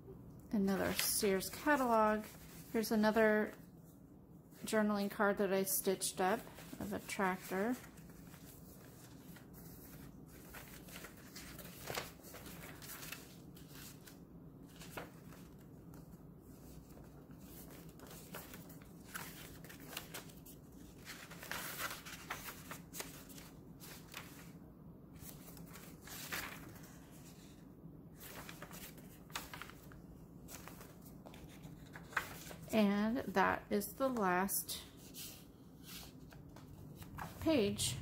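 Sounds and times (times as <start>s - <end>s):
pages rustling as turned: 0.8s - 2.9s, 6.4s - 27.6s, 28.2s - 32.7s, 34.9s - 37.8s
faint low hum: 36.0s - 38.0s.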